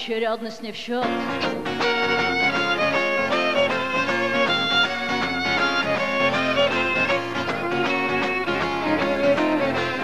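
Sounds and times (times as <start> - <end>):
strummed acoustic guitar: 1.1 - 10.0
violin melody: 1.2 - 10.0.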